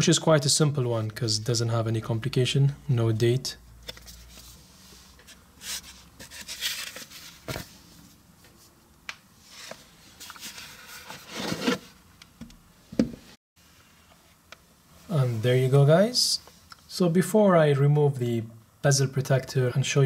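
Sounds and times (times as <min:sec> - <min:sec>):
paper rustling: 0:05.2 - 0:07.8.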